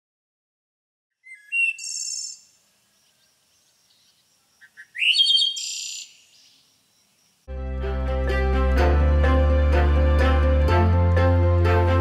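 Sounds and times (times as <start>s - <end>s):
songbird singing: 1.1s - 7.5s.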